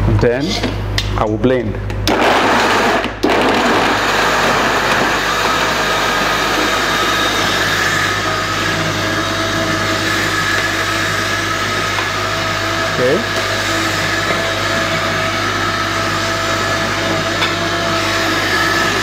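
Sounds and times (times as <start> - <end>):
blender running: 2.0 - 19.0.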